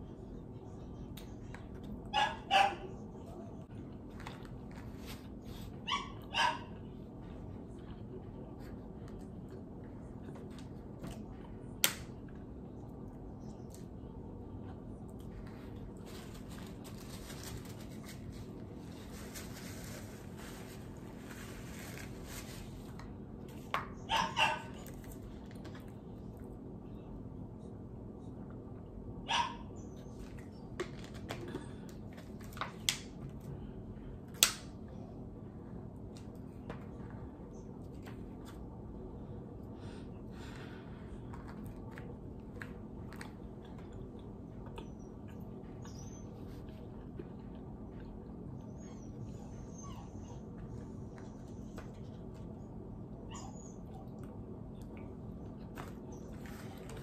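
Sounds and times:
low room hum: 0.0 - 57.0
dog barking: 2.1 - 3.0, 5.8 - 6.8, 24.1 - 24.8, 29.3 - 29.7.

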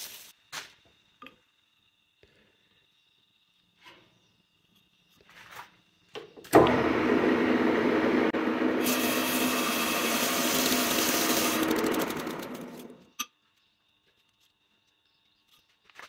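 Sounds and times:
metal lathe running: 6.6 - 13.0
bright hiss of cutting: 8.8 - 12.0.

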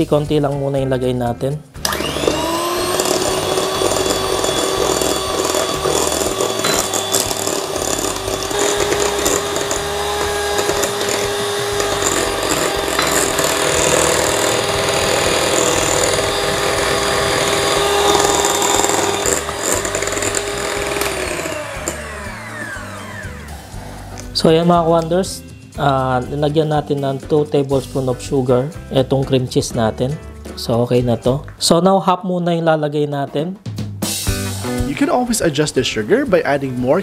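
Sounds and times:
mixer clicks: 1.8 - 23.3
electric hand mixer running: 1.8 - 24.4.

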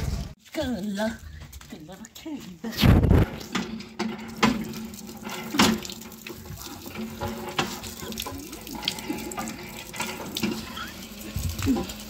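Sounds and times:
water splashing into basin: 2.9 - 12.0
hand pump being worked: 3.2 - 12.0.

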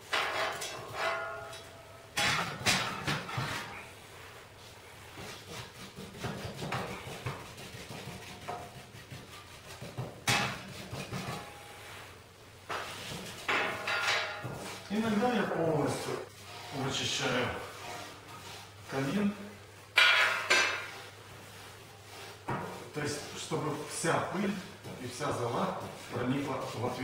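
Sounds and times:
metallic clanks: 0.0 - 3.3.

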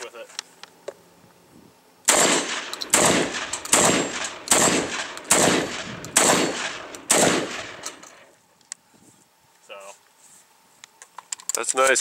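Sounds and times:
shotgun shots echoing: 2.1 - 8.2.

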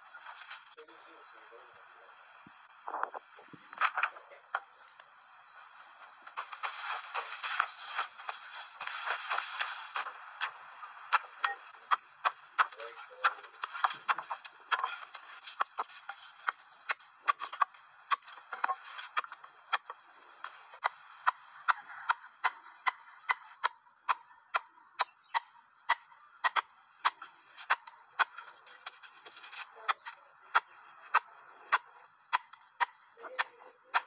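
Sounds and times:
wooden stakes being hammered: 6.4 - 20.0, 20.8 - 29.0, 29.8 - 34.0.

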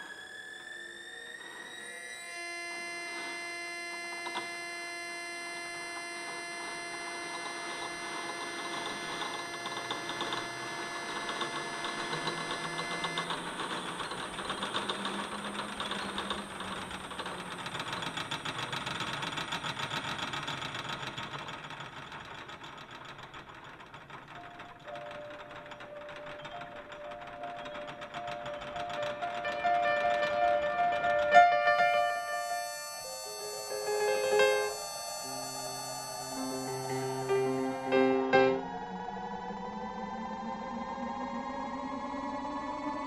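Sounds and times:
held piano chord: 26.4 - 39.0
short piano notes: 29.0 - 38.7.

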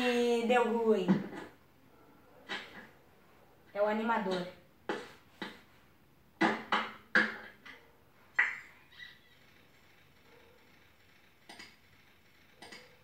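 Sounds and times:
keyboard and mouse clicks: 8.4 - 13.0.

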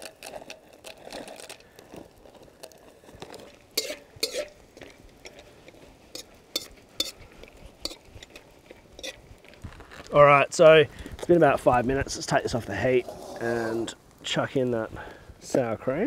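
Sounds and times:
dry pasta pouring: 0.0 - 5.9
metal utensil clinking in wok: 3.8 - 4.5.

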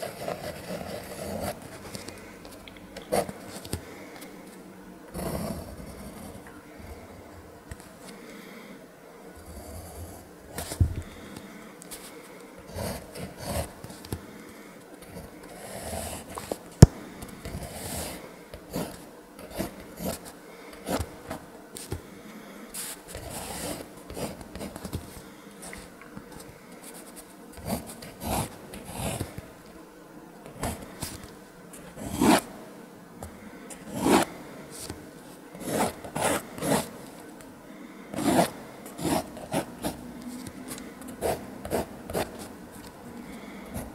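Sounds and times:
pencil scratching on paper: 0.0 - 2.0, 5.2 - 6.4, 12.7 - 13.8, 15.5 - 16.6, 17.4 - 21.4, 22.8 - 24.9, 26.8 - 29.4, 30.6 - 32.5, 33.8 - 34.9, 35.6 - 37.0, 38.1 - 42.5.

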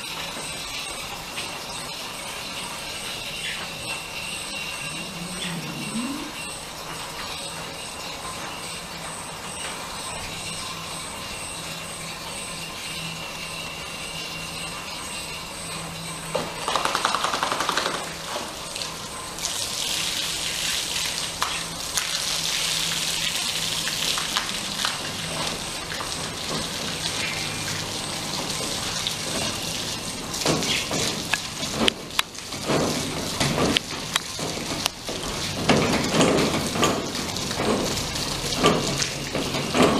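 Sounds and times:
water pouring over a dog: 16.5 - 39.9.

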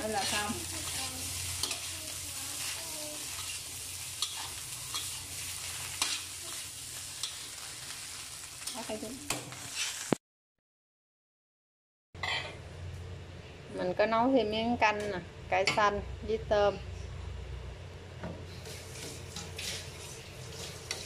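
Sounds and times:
metal spatula scraping wok: 0.0 - 7.9, 8.6 - 10.2, 18.6 - 21.0
rice sizzling in a wok: 0.0 - 10.2, 18.4 - 21.0.

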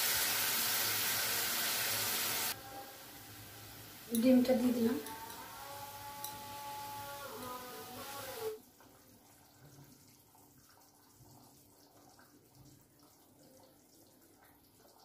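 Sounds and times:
curry bubbling in a pan: 8.6 - 15.0.

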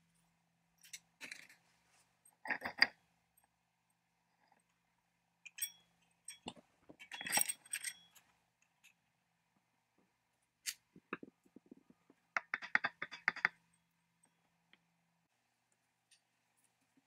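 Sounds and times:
metal clinks and scrapes: 5.5 - 9.0.

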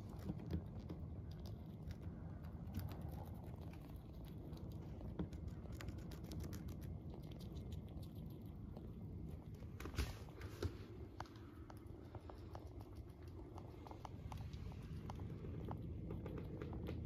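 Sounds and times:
hamster gnawing carrot: 0.0 - 17.0.

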